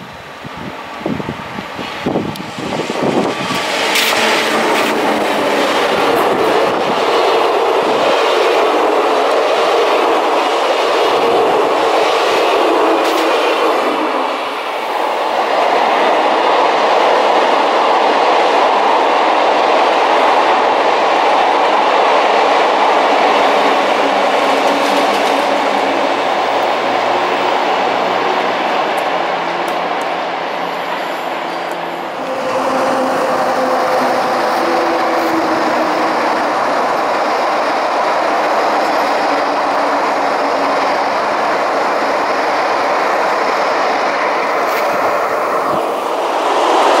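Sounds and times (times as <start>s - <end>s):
train running past: 0.0s - 47.0s
wheels clacking over rail joints: 2.1s - 14.4s, 22.9s - 30.3s.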